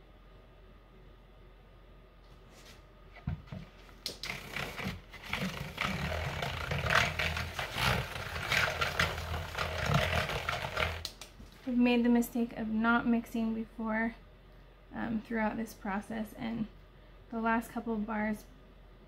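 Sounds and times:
utensil scraping a plastic bowl: 3.6 - 11.1.

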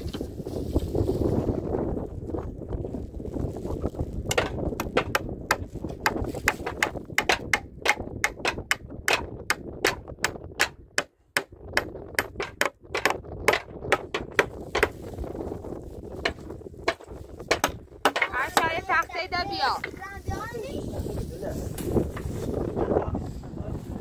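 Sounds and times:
sharp knocks: 4.3 - 14.9, 16.2 - 18.7.

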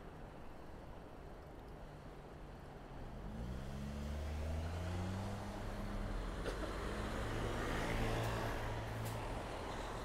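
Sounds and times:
vehicle engine pulling away: 3.2 - 9.2.

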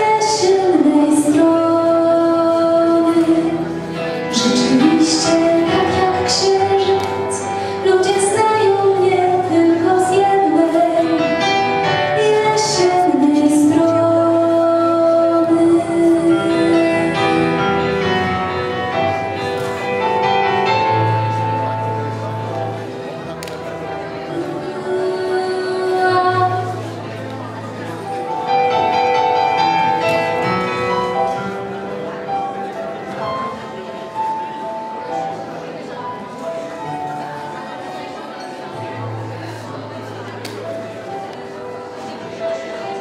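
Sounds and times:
music: 0.0 - 43.0
woman singing long notes: 24.3 - 27.0.

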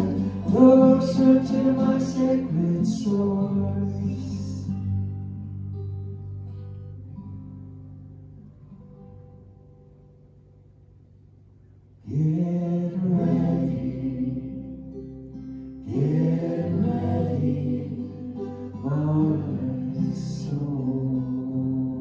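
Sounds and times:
sustained worship music chords: 0.0 - 7.3, 12.1 - 22.0.

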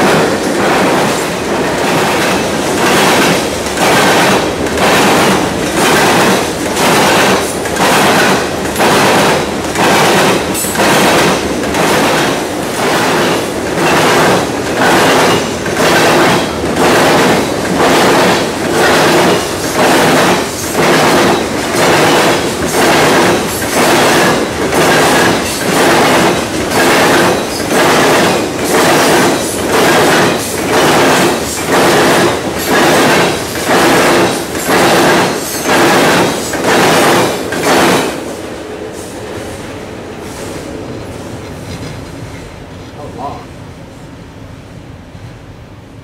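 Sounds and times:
train wheels clattering on rails: 0.0 - 43.1
train rumble: 0.0 - 46.0.

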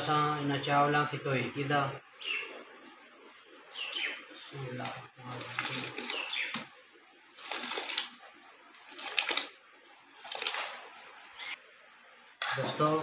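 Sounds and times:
rice pouring into boiling water: 5.2 - 6.2, 7.3 - 8.2, 8.8 - 10.8.

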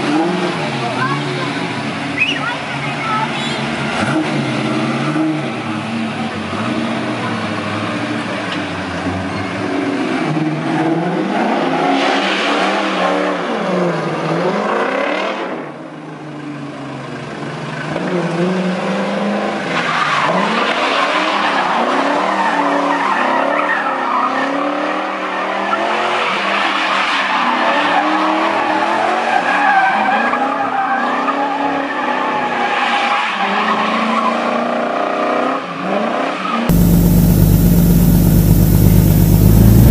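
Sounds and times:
tyres skidding and squealing: 0.1 - 7.9, 19.5 - 39.9
car engine revving: 36.7 - 39.9.

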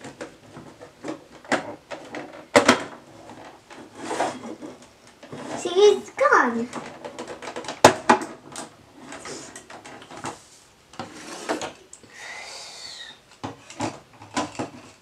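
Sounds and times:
plastic rubbing: 0.0 - 11.8
plastic toy clicks and knocks: 6.6 - 10.4.

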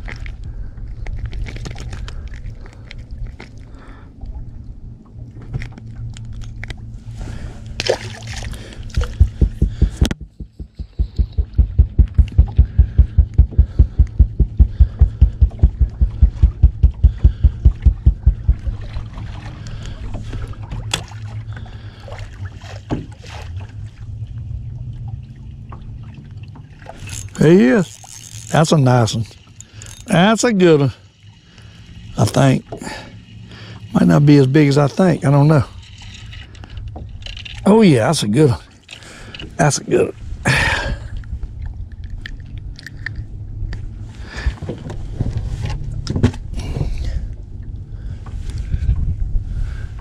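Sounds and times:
steady low hum: 0.0 - 50.0
water sloshing: 1.0 - 40.4
handling clicks and knocks in boat: 5.1 - 6.9, 7.7 - 23.6, 25.5 - 30.9, 31.6 - 40.1, 41.1 - 47.5
fast loud low thumps: 8.9 - 18.9.

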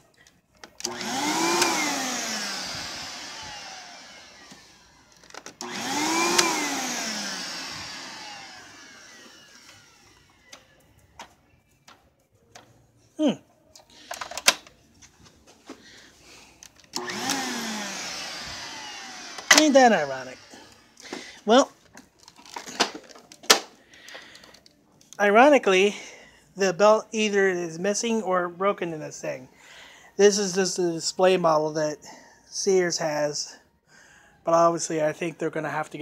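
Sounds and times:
vacuum cleaner motor whirring: 0.6 - 11.4, 16.0 - 21.5.

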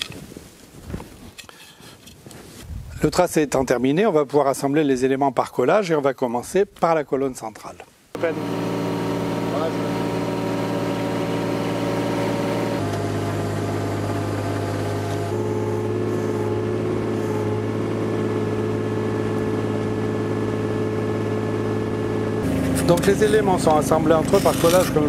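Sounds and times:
excavator diesel engine running: 8.2 - 25.0.

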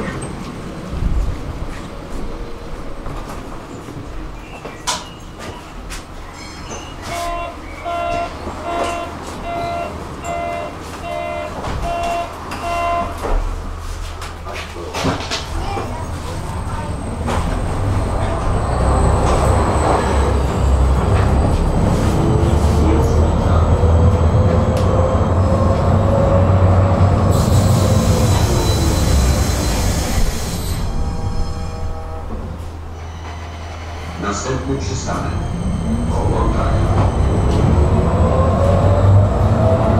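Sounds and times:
tram interior hum: 0.0 - 39.9
door warning beeps: 6.8 - 13.2
high squealing hiss: 27.4 - 31.4.

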